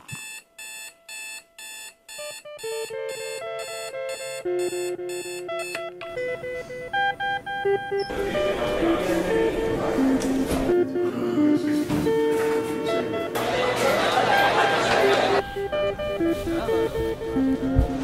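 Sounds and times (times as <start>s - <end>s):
electronic alarm ringtone: 0.1s - 10.2s, 14.6s - 17.7s
background guitar music: 2.4s - 18.0s.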